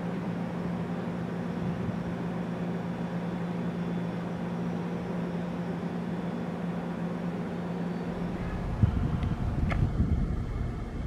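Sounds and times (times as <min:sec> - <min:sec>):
mechanical siren humming: 0:05.5 - 0:11.0
wind hiss: 0:08.1 - 0:11.0.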